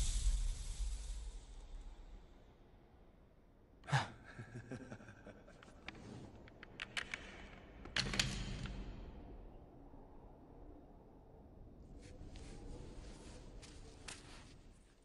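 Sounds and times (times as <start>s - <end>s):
wooden pieces clicking and knocking: 5.6s - 9.4s.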